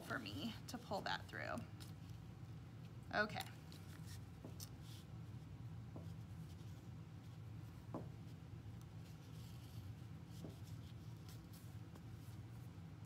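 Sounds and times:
steady low hum: 0.0s - 13.0s
soft taps on cardboard: 5.9s - 6.7s, 7.8s - 8.9s, 10.3s - 10.9s.

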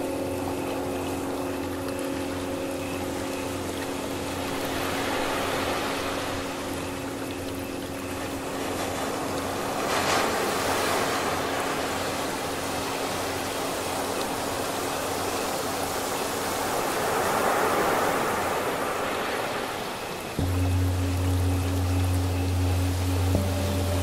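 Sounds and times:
faint steady low tone: 20.4s - 24.0s.

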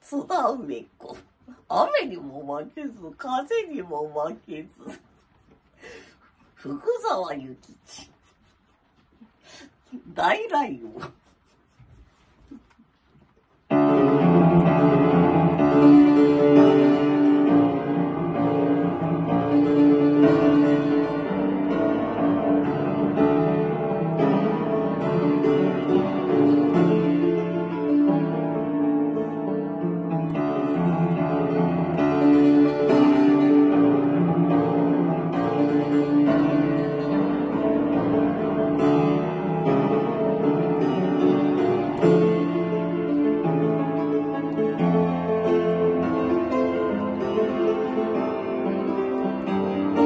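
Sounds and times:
upright piano playing: 13.7s - 50.0s.

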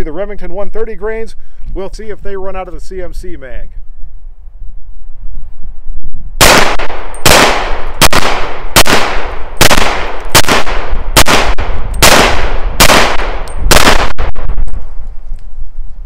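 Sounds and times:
pistol shots: 6.4s - 14.6s.

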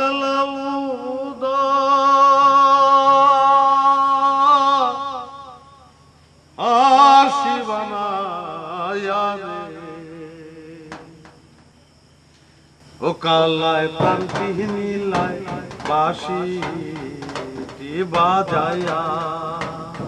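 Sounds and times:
sharp percussive strikes: 13.8s - 20.0s.

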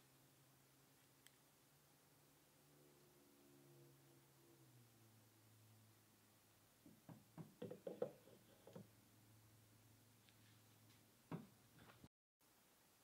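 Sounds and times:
hard plastic parts knocking: 6.9s - 8.9s.

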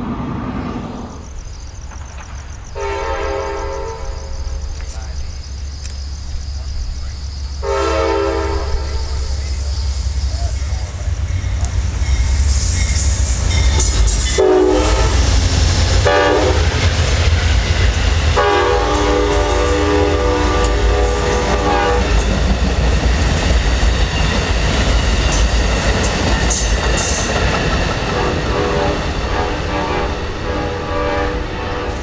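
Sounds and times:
passenger train rumbling past: 0.0s - 32.0s
multi-note train horn blasts: 2.8s - 5.0s, 7.6s - 16.9s, 18.3s - 22.4s, 28.1s - 32.0s.

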